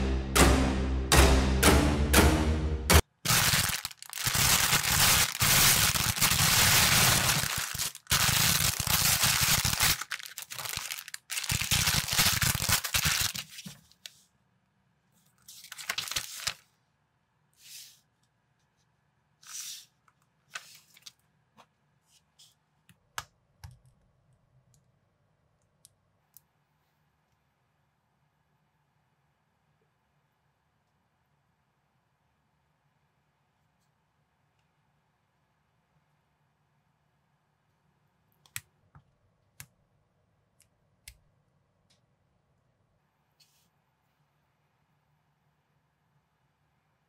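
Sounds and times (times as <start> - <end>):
plastic bags crinkling and tearing: 3.3 - 14.0, 15.6 - 16.6.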